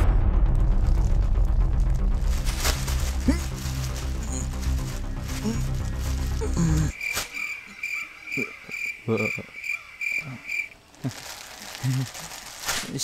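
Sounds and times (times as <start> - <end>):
insect chirping: 3.0 - 12.5.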